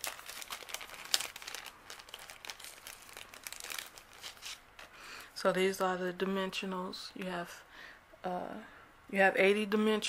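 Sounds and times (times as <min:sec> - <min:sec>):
plastic packet crinkling: 0:00.0 - 0:05.0.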